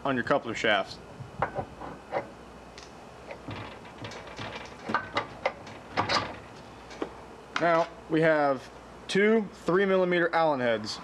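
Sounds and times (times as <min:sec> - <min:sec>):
metal shaft clicking and scraping: 0:01.4 - 0:07.1
sharp metal knocks: 0:03.3 - 0:07.1.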